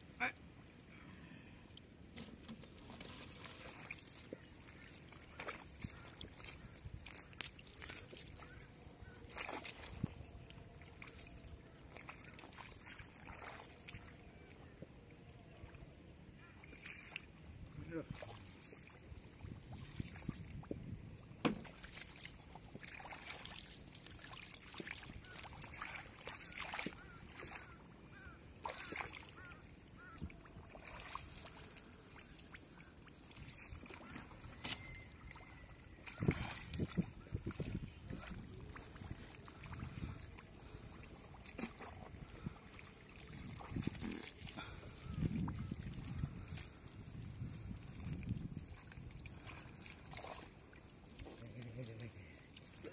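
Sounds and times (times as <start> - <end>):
muddy water sloshing and splashing: 0.0 - 52.9.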